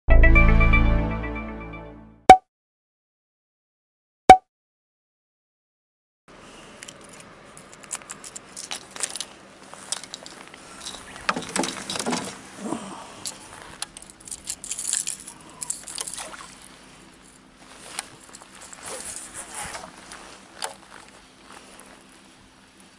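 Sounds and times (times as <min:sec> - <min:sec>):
fishing tackle clicking and rattling: 0:09.9 - 0:12.2, 0:13.8 - 0:16.5.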